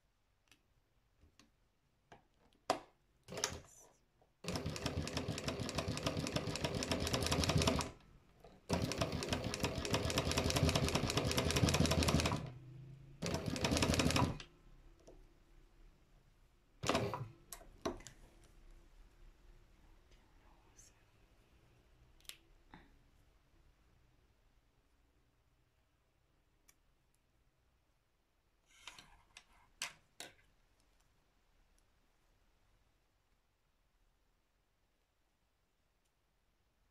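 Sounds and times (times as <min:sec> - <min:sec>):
sewing machine stitching: 0:03.3 - 0:03.7, 0:04.4 - 0:12.6, 0:13.2 - 0:14.5, 0:16.8 - 0:17.4.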